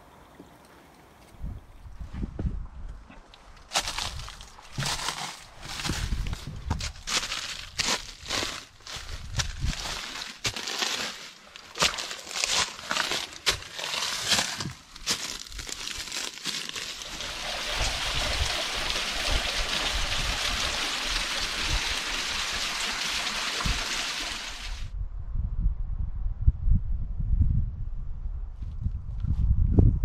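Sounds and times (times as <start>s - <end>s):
wind buffeting microphone: 1.3s - 3.1s, 5.6s - 7.1s, 24.9s - 30.0s
footsteps crunching dry leaves: 3.7s - 17.3s
brush scraping: 3.8s - 17.3s.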